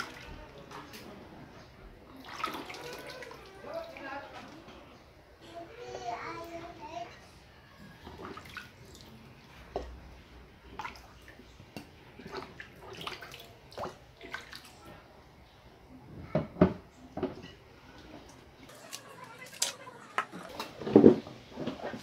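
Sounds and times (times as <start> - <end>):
water splashing in basin: 2.1 - 4.3, 8.0 - 9.2, 12.2 - 14.8.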